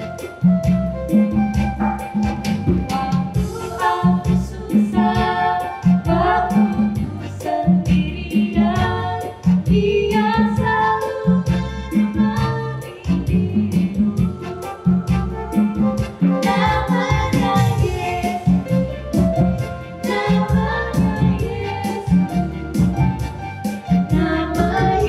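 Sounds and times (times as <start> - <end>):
backing track with steady beat: 0.0 - 25.0
women singing together: 2.8 - 23.0, 23.8 - 25.0.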